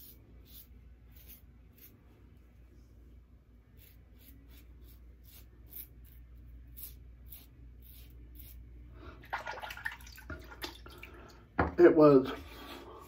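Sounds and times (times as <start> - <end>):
razor scraping stubble: 0.0 - 2.0, 3.7 - 8.7
tap water running: 9.2 - 11.8.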